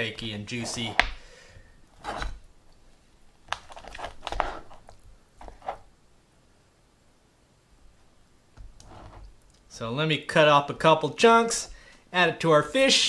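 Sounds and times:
knife cutting through ribs: 0:00.3 - 0:01.2, 0:02.0 - 0:02.4, 0:03.7 - 0:04.9.

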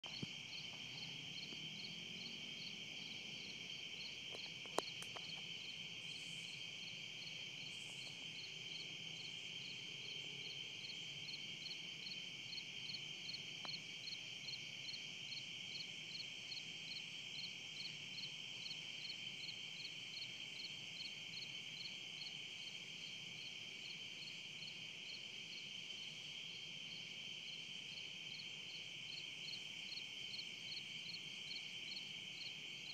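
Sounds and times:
insects trilling: 0:00.1 - 0:18.3
insects chirping: 0:00.1 - 0:32.9.

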